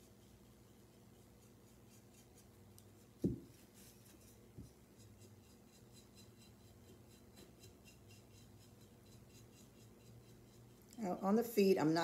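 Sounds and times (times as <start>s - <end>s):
paintbrush scratching on ceramic: 0.0s - 12.0s
low thump: 3.2s - 3.5s.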